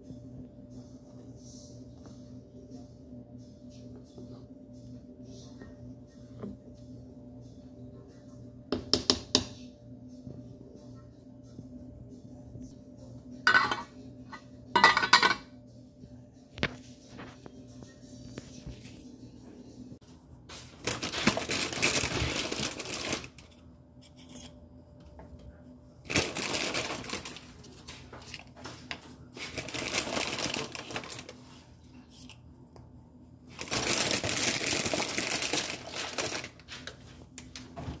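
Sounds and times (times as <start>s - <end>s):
plastic bag crinkling: 20.8s - 23.4s, 26.1s - 27.7s, 29.4s - 31.4s, 33.6s - 36.7s.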